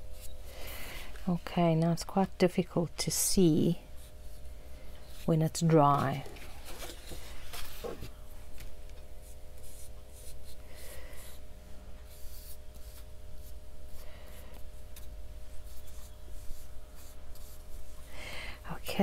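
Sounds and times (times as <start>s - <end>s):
steady low hum: 0.0s - 19.0s
scratchy brush strokes on paper: 9.2s - 18.1s.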